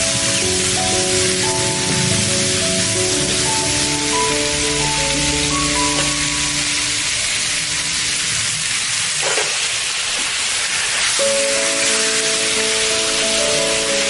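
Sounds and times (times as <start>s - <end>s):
stir-fry sizzling in a pan: 0.0s - 14.0s.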